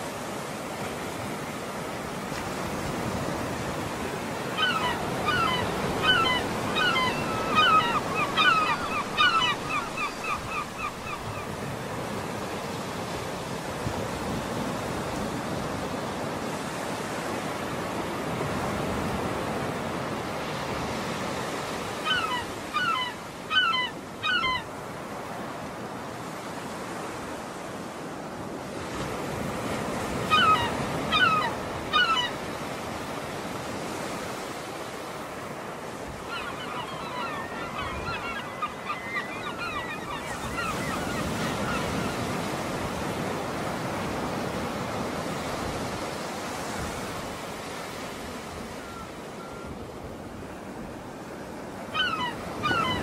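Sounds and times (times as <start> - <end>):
waves washing in: 0.0 - 23.3, 24.7 - 53.0
bird calling: 4.5 - 11.6, 22.0 - 24.7, 30.2 - 32.5, 36.2 - 42.5, 51.9 - 53.0.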